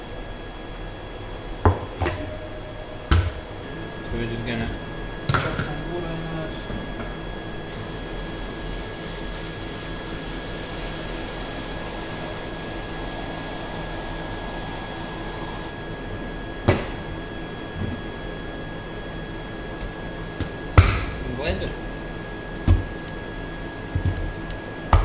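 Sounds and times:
faint steady hum: 0.0s - 25.0s
hose water spraying into jug: 7.7s - 15.8s.

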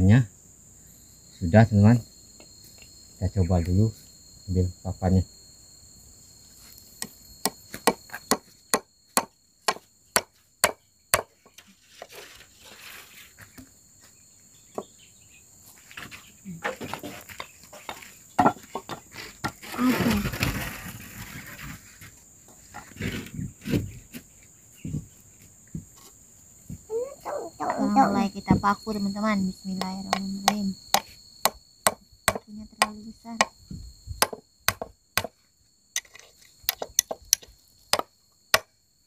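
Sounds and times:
hammer striking nail into wood: 7.4s - 11.4s, 30.1s - 33.5s, 34.2s - 35.3s.

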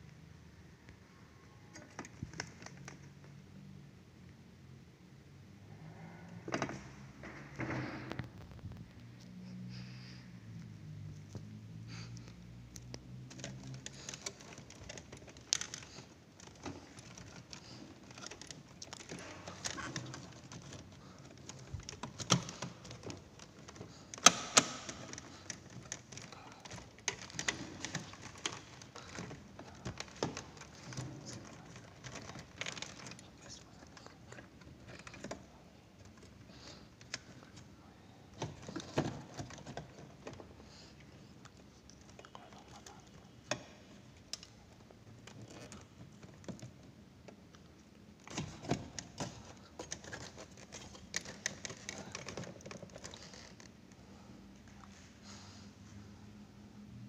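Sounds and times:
plastic connectors clicking: 12.7s - 33.2s.

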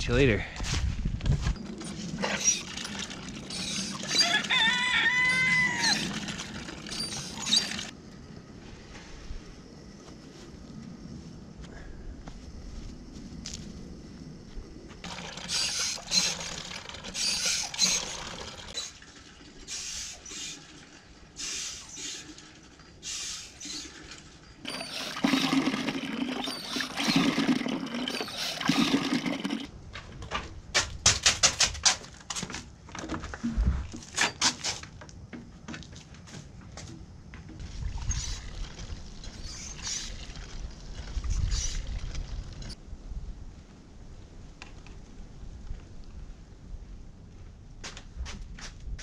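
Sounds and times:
water splashing into plastic bucket: 15.0s - 19.5s.

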